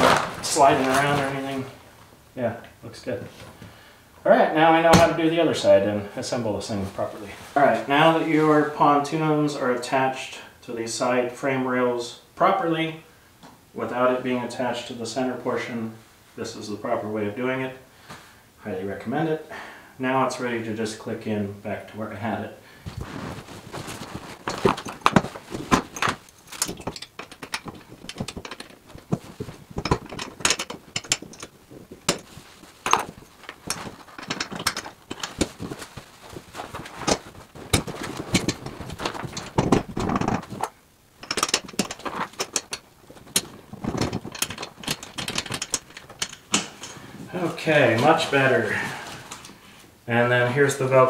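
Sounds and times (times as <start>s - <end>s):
metal parts clicking and rattling: 0.0s - 1.6s, 22.9s - 47.0s
scraping and rustling: 0.0s - 2.1s, 22.8s - 49.8s.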